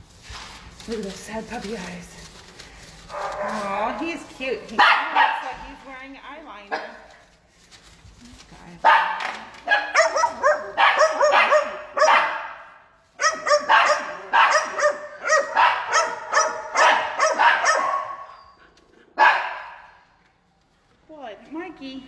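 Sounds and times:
puppy barking: 4.8 - 5.6, 6.7 - 7.1, 8.8 - 18.5, 19.2 - 20.0.

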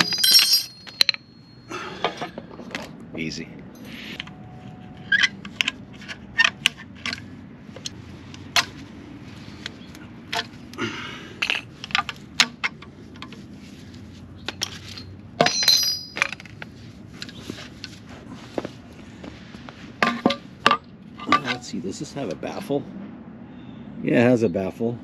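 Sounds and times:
ringing metallic clank: 0.0 - 1.7, 15.0 - 16.4
metal tools clinking on stone: 0.0 - 2.4, 14.5 - 16.5.

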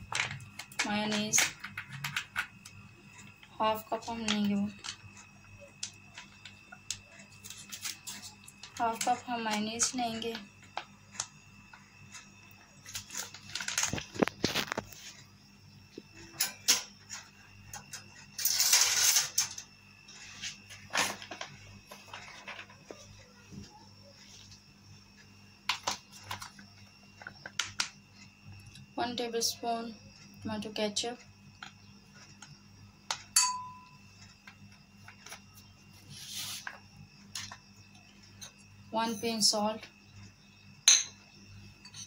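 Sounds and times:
glass bowl and dishes clinking: 33.4 - 34.0, 40.9 - 41.2.

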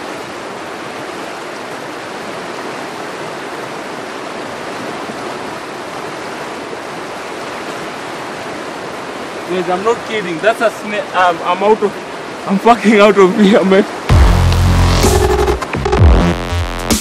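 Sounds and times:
river rushing over rocks: 0.0 - 14.2.

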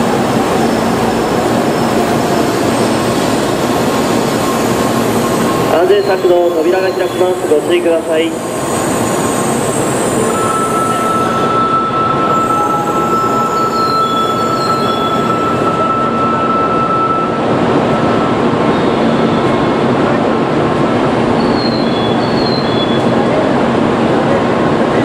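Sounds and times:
train rumbling and hissing: 0.0 - 25.0
thin high whine: 4.4 - 19.8.

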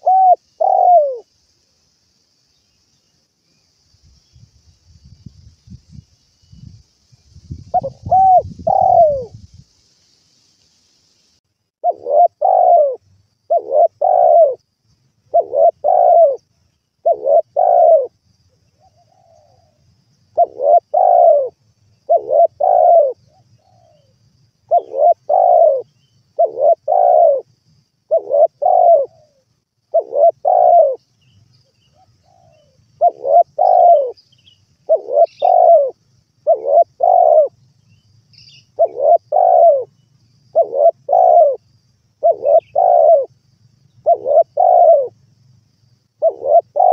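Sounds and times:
dove cooing: 0.0 - 1.3, 7.7 - 9.4, 11.8 - 14.6, 15.3 - 18.2, 18.8 - 24.1, 24.7 - 27.5, 28.1 - 31.0, 31.9 - 34.2, 34.8 - 37.6, 38.6 - 39.9, 40.5 - 43.3, 44.0 - 45.2, 46.2 - 46.9.

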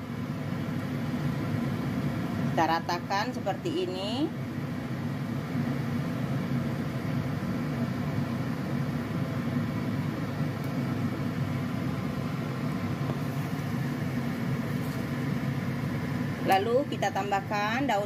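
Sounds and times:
low rumble of steamer on stove: 0.0 - 18.0
water boiling: 5.3 - 17.8.

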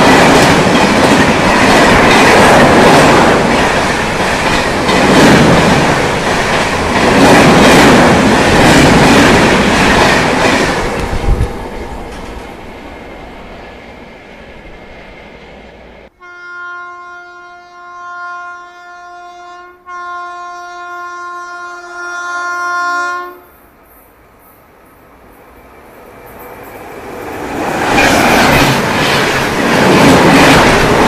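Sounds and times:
train rushing past: 0.0 - 16.1, 23.7 - 31.0
locomotive horn blasts: 16.1 - 23.6.

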